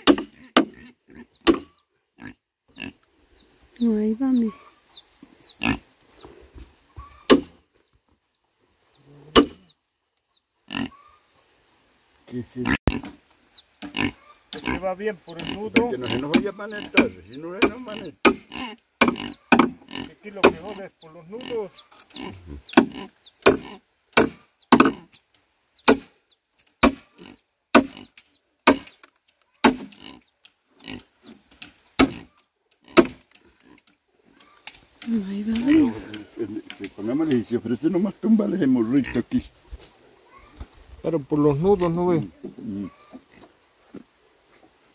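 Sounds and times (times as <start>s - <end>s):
hammer striking iron wedge: 0.0s - 0.7s, 1.5s - 1.7s, 7.3s - 7.6s, 9.4s - 9.6s, 15.8s - 19.8s, 20.4s - 20.6s, 23.5s - 25.0s, 25.9s - 26.1s, 26.8s - 27.0s, 27.8s - 28.0s, 28.7s - 29.0s, 29.6s - 30.0s, 32.0s - 32.2s, 33.0s - 33.2s.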